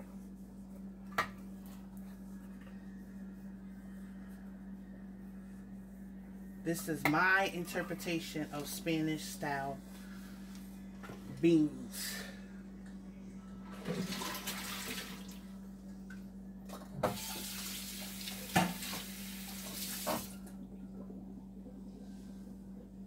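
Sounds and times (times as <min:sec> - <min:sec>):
steady low hum: 0:00.0 - 0:14.0, 0:14.8 - 0:17.1, 0:17.7 - 0:23.0
tap running water into sink: 0:17.0 - 0:20.3.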